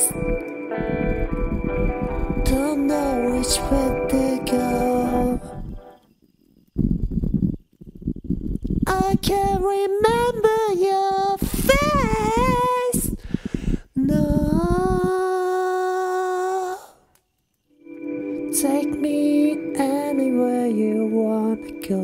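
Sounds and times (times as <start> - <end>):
wordless singing: 0.0 - 6.0, 17.9 - 22.0.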